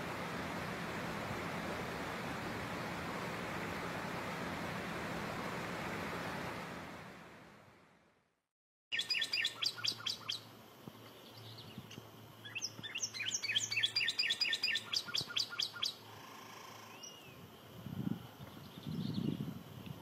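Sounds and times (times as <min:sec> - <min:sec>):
bird singing down-slurred whistles: 0:08.9 - 0:10.4, 0:12.4 - 0:16.0.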